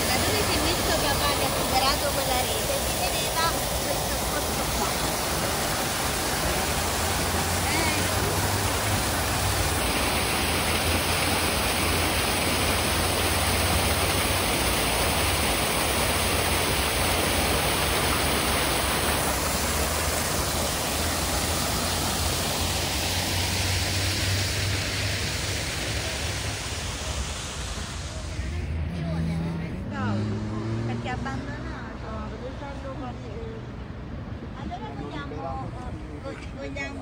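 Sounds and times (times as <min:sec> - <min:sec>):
waterfall rushing: 0:00.0 - 0:28.9.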